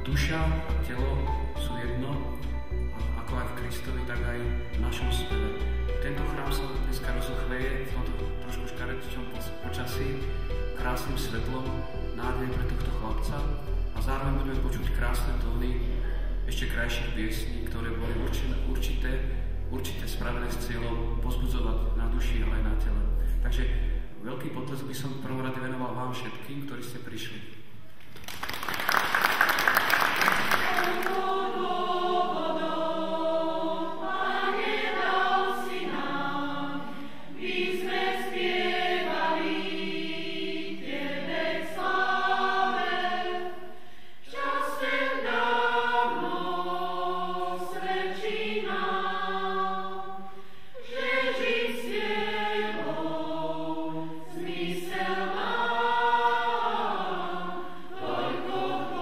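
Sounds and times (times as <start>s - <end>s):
church choir singing: 0.0s - 27.4s, 28.8s - 59.0s
applause: 28.0s - 31.2s.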